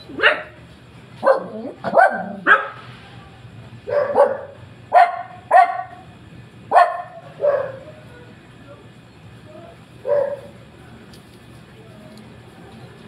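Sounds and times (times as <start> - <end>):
dog barking: 0.2 - 0.6, 1.2 - 2.8, 3.9 - 6.0, 6.7 - 7.9, 10.0 - 10.5.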